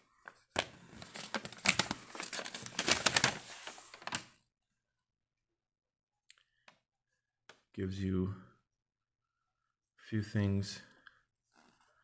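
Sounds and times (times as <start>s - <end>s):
paper crinkling: 0.6s - 4.4s.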